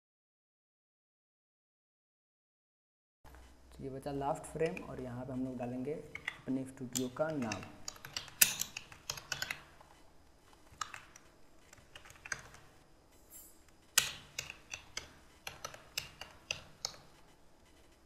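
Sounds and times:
keyboard typing: 4.6s - 12.8s, 13.9s - 17.9s.

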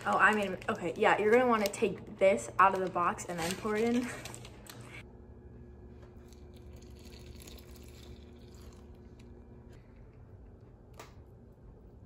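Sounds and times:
liquid pouring into bowl: 6.2s - 9.4s.

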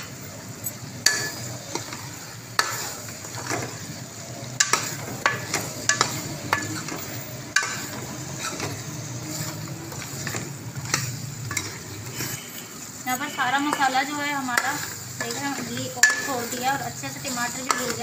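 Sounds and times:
sauce sizzling in a pot: 0.0s - 18.0s
metal ladle scraping a pot: 4.6s - 18.0s
ladle clinking against pot: 16.0s - 16.3s.

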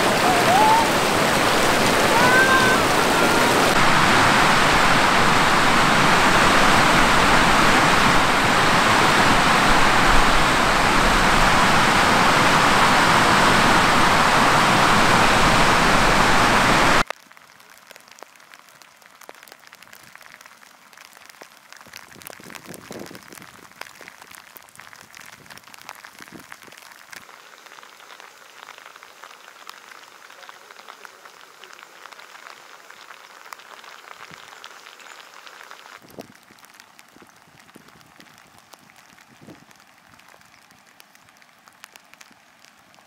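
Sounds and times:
mountain stream rushing: 0.0s - 17.0s
faint light crackles: 17.0s - 43.0s.

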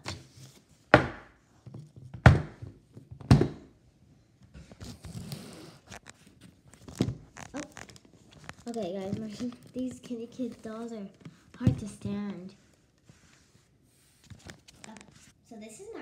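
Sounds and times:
plastic dolls thudding on table: 0.9s - 1.3s, 2.2s - 3.7s
handling rustle: 5.9s - 11.4s.

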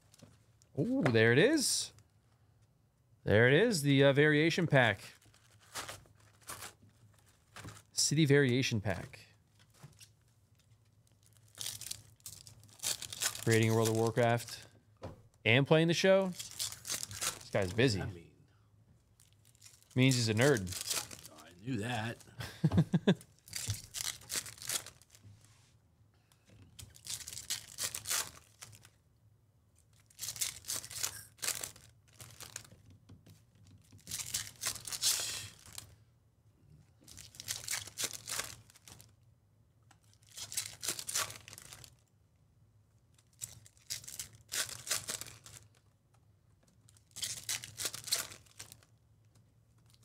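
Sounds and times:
wrappers and cards handled: 5.1s - 8.0s, 9.5s - 14.6s, 16.2s - 18.0s, 19.1s - 22.3s, 22.9s - 25.6s, 26.3s - 29.0s, 29.8s - 36.0s, 37.0s - 39.2s, 40.0s - 42.1s, 43.1s - 45.9s, 46.6s - 50.0s
foil card packs tearing: 5.2s - 6.8s, 11.4s - 14.6s, 16.3s - 17.9s, 19.5s - 22.2s, 23.4s - 25.2s, 26.8s - 28.9s, 30.0s - 32.7s, 34.0s - 35.9s, 37.1s - 39.1s, 40.1s - 42.0s, 43.4s - 45.8s, 47.0s - 48.9s.

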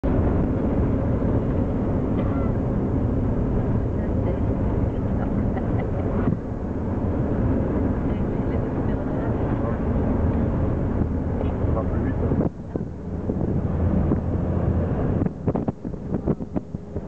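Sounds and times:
engine and road rumble in vehicle: 0.0s - 17.0s.

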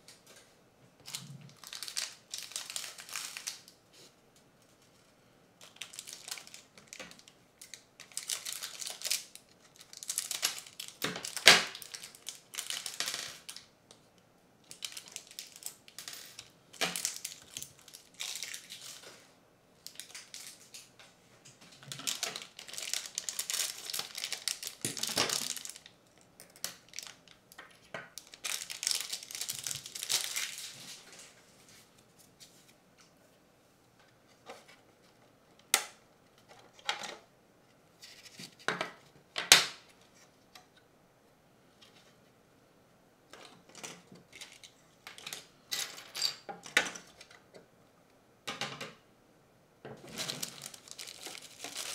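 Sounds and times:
plastic bags crinkling and tearing: 1.0s - 3.8s, 5.6s - 13.7s, 14.7s - 19.1s, 19.8s - 20.8s, 21.8s - 27.4s, 28.1s - 31.0s, 50.0s - 51.9s.

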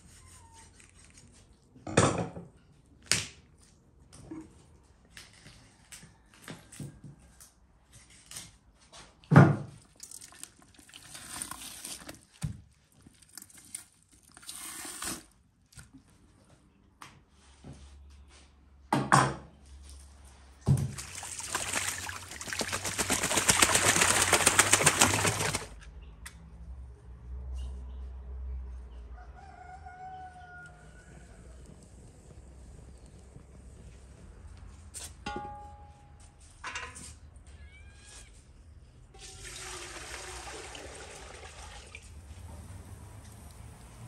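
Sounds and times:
liquid pouring into plastic bucket: 9.9s - 12.4s, 13.1s - 15.4s, 20.8s - 25.7s, 39.2s - 42.2s.

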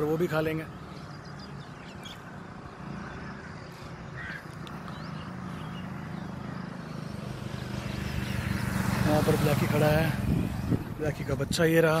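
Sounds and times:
road traffic rumble: 0.0s - 12.0s
short bird calls: 0.7s - 7.2s.

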